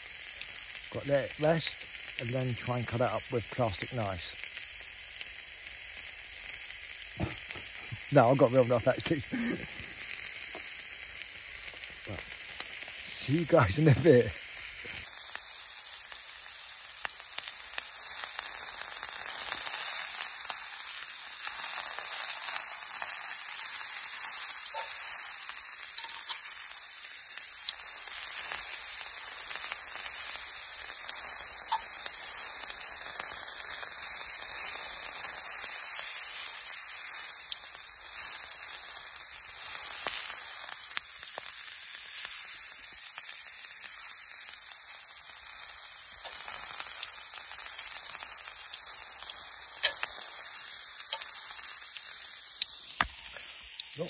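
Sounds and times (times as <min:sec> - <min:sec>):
food sizzling in a skillet: 0:00.0 - 0:54.0
small crackles of frying: 0:00.0 - 0:54.0.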